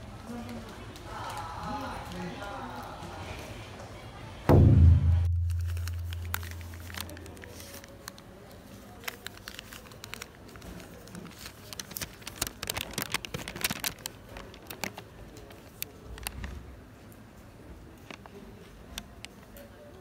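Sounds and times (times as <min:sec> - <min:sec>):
deep boom: 0:04.5 - 0:07.0
plastic bag and wrapper crinkling: 0:05.3 - 0:16.7, 0:18.0 - 0:19.6.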